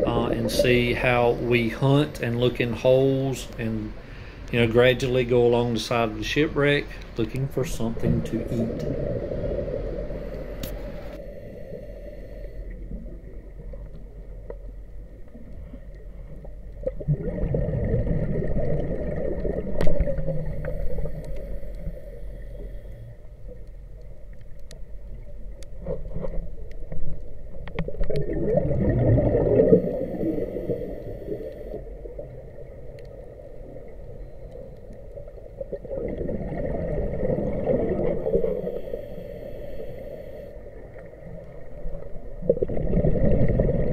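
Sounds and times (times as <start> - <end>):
underwater air bubbling: 0.0 - 43.9
diver breathing: 3.9 - 4.6, 9.1 - 12.8, 20.5 - 23.2, 29.6 - 31.8, 38.0 - 40.6.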